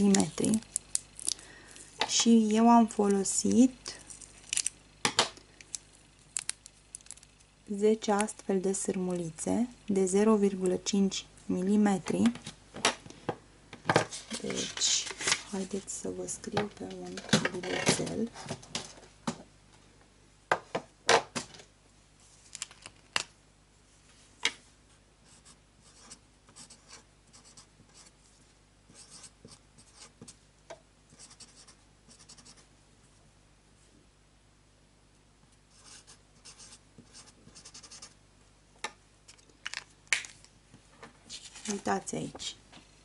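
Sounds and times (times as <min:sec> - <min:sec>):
pen scratching on paper: 0:25.3 - 0:28.2, 0:28.9 - 0:30.3, 0:31.1 - 0:32.6, 0:35.7 - 0:38.1.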